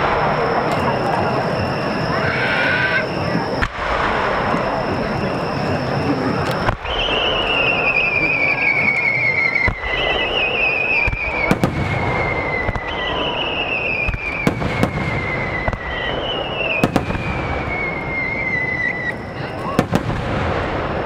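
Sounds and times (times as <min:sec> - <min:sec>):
sharp firework bangs: 0:00.0 - 0:01.2, 0:03.6 - 0:05.4, 0:09.5 - 0:21.0
rumble of firework bursts: 0:00.0 - 0:21.0
whistling firework shells: 0:00.0 - 0:21.0.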